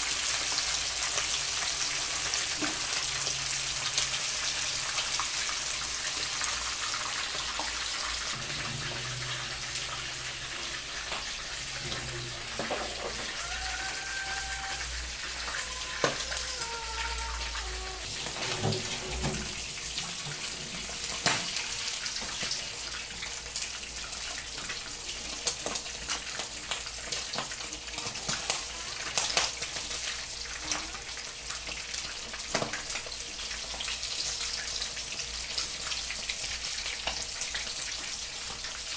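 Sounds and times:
meat deep-frying in oil: 0:00.0 - 0:38.9
oil crackles and pops: 0:19.8 - 0:38.9.

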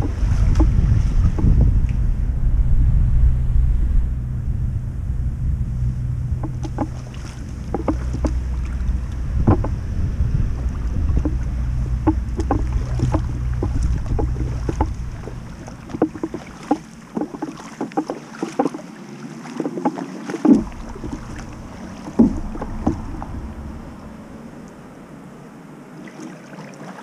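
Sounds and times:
paddle splashing in water: 0:00.0 - 0:02.0, 0:06.4 - 0:24.1, 0:26.0 - 0:27.0
wind rumble on microphone: 0:00.0 - 0:18.7, 0:20.4 - 0:25.9
water dripping: 0:06.4 - 0:23.9.

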